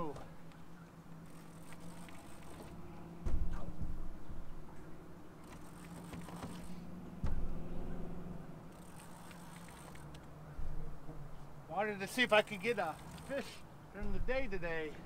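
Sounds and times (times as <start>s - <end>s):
steady low hum: 0.0s - 15.0s
fishing reel cranking: 1.3s - 2.7s, 8.7s - 10.1s, 12.5s - 13.6s
sharp thump: 3.2s - 4.1s, 7.2s - 7.7s.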